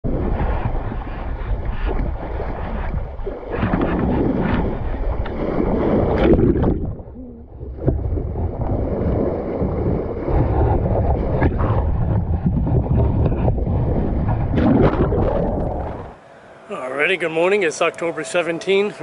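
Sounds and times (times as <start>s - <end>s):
wind buffeting microphone: 0.0s - 16.3s
water rushing along boat bow: 0.0s - 19.0s.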